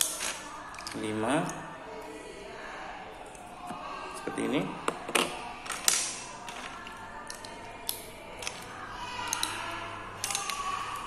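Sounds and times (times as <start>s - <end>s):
plastic bricks clicking together: 0.0s - 1.0s, 4.9s - 11.0s.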